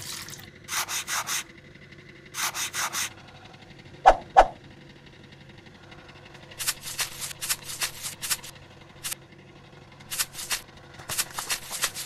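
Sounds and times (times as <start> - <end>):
scratchy rasping strokes: 0.7 - 1.5, 2.4 - 3.2, 6.5 - 9.2, 10.1 - 12.0.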